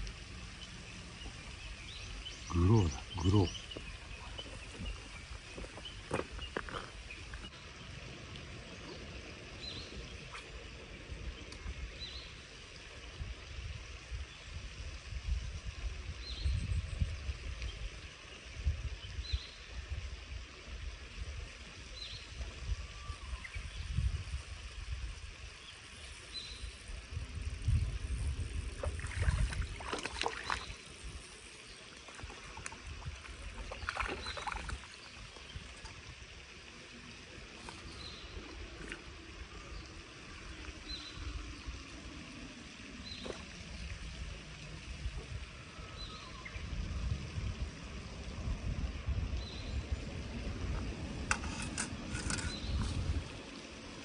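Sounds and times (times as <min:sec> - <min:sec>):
wind rumble on microphone: 0:00.0 - 0:36.6, 0:37.3 - 0:54.0
bird chirping: 0:00.6 - 0:07.6
fish splashing in water: 0:28.8 - 0:31.0, 0:31.8 - 0:36.3.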